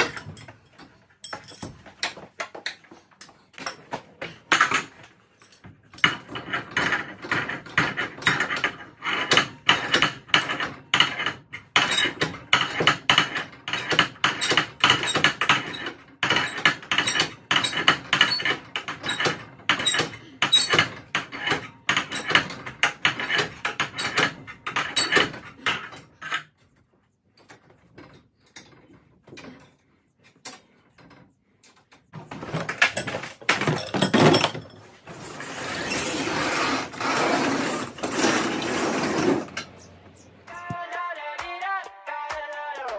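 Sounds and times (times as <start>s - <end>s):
metal bars clinking on spring: 0.0s - 2.8s, 4.5s - 26.7s.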